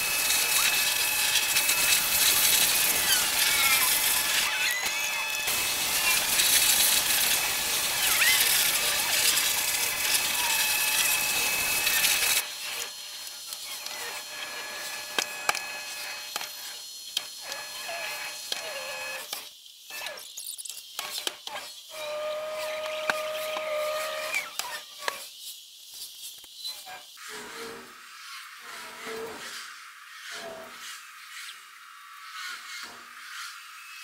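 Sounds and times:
pressure washer spray hissing: 0.0s - 4.4s, 5.5s - 12.4s.

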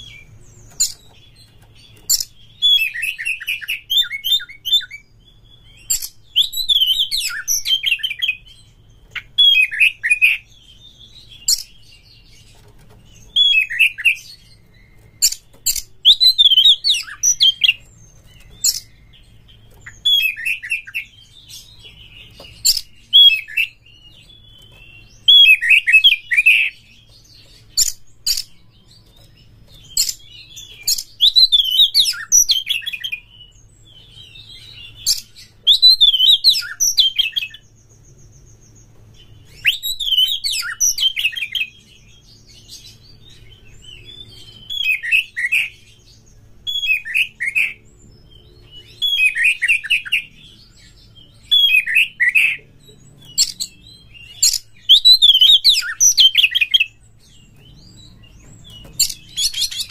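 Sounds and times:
bird singing whistles and clicks: 5.7s - 8.4s, 13.2s - 33.2s, 39.4s - 41.7s.

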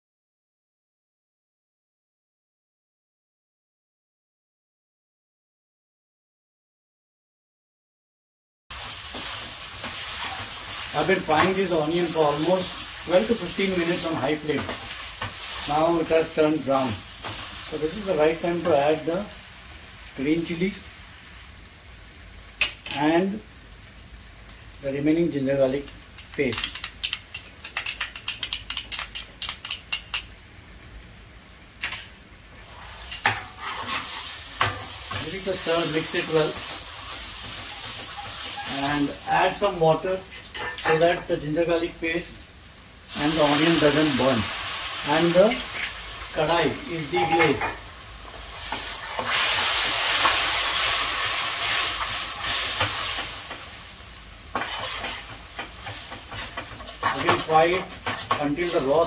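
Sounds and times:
water sizzling in hot pan: 8.7s - 59.0s
metal spatula clinking and scraping: 26.2s - 30.3s, 32.9s - 38.9s, 40.3s - 41.2s, 46.9s - 47.8s, 54.5s - 59.0s.

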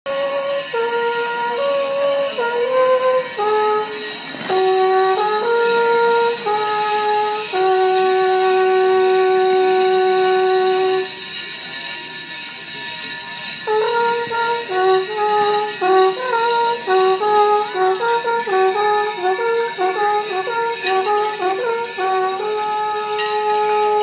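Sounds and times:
alphorn melody: 0.0s - 11.2s, 13.6s - 24.0s.

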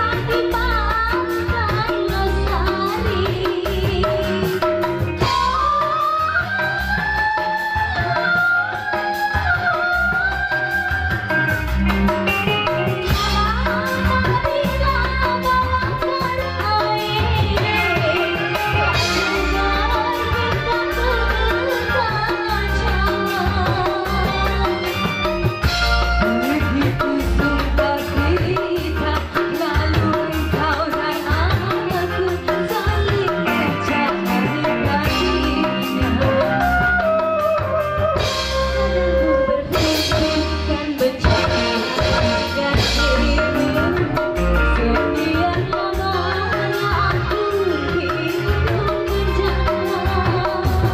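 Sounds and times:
person singing: 0.0s - 25.4s, 26.2s - 50.9s
drum kit beat: 0.0s - 50.9s
electric guitar: 0.0s - 50.9s
live band music: 0.0s - 50.9s.

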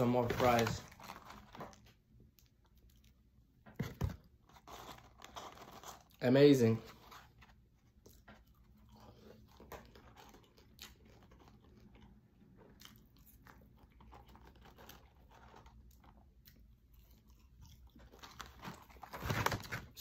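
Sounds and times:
chewing crunchy fries: 7.0s - 20.0s.

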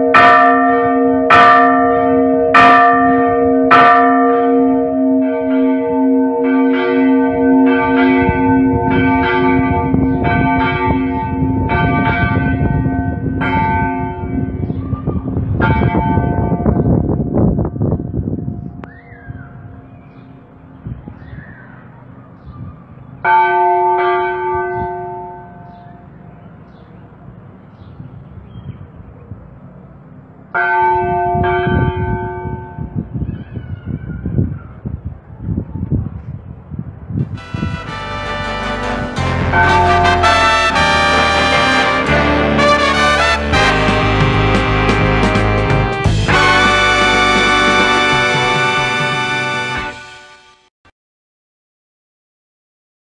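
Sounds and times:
church bell ringing: 0.0s - 14.6s, 15.6s - 16.7s, 23.3s - 25.9s, 30.6s - 32.8s, 37.4s - 50.0s
rough low rumble: 37.2s - 49.3s.

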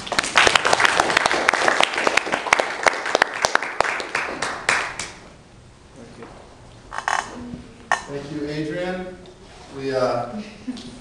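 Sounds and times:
audience applauding: 0.0s - 5.2s.

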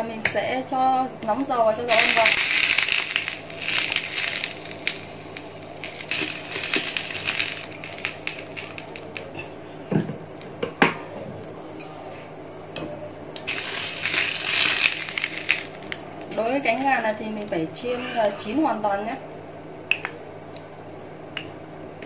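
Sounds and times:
oil pouring into frying pan: 1.9s - 9.2s, 13.5s - 15.9s.

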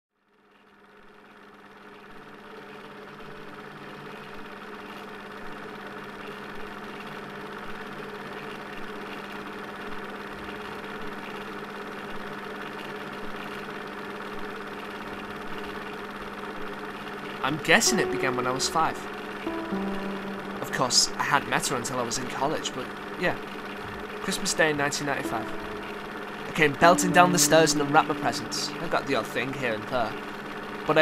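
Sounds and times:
projector mechanical hum: 15.6s - 31.0s.

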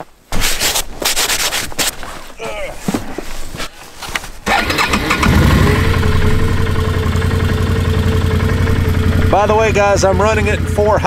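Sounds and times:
atv engine starting and running: 4.4s - 11.0s.

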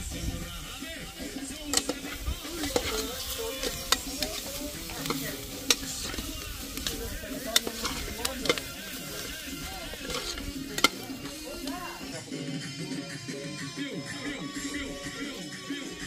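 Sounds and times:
onions frying sizzle: 0.0s - 12.6s
spoon clinking in metal pot: 1.6s - 12.0s.

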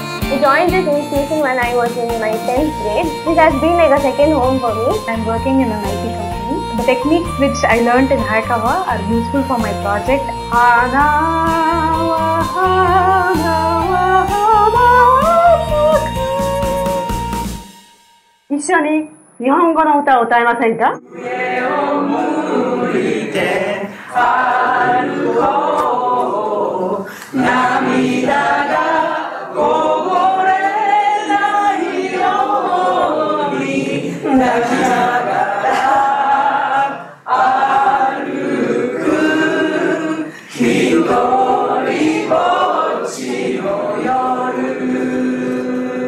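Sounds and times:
group singing in unison: 8.5s - 17.6s, 21.0s - 46.0s.

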